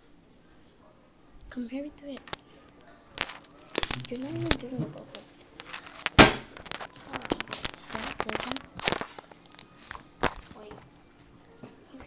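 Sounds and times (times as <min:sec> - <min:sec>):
slime sticky crackling: 0:02.0 - 0:12.0
slime popping: 0:03.2 - 0:10.8.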